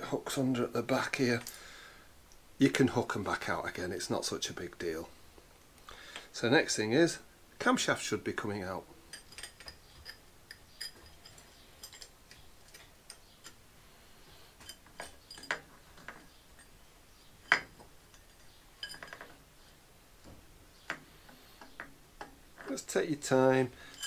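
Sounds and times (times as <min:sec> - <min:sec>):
light metallic clicks and clinks: 0:09.0 - 0:13.6, 0:14.6 - 0:16.8, 0:17.4 - 0:19.4, 0:23.7 - 0:24.0.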